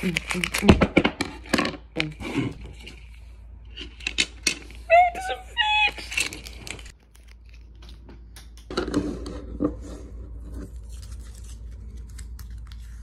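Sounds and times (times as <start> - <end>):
knocks and scrapes on desk: 8.7 - 10.1.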